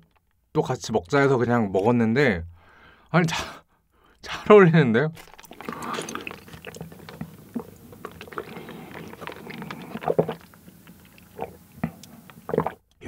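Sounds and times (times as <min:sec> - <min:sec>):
slurping through a straw: 0:05.2 - 0:12.8
chewing with wet clicks: 0:05.2 - 0:13.0.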